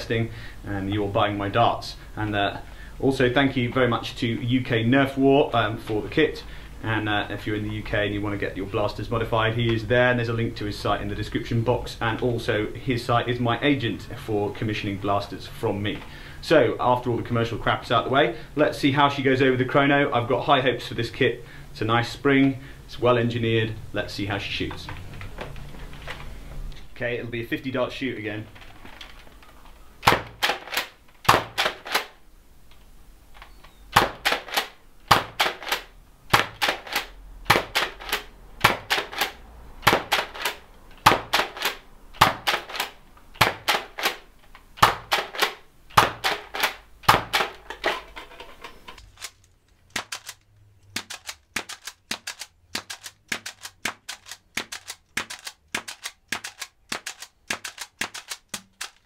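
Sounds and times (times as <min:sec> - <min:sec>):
toy blaster plastic clacks: 0:28.6 - 0:32.2, 0:33.4 - 0:48.2, 0:49.0 - 0:59.0.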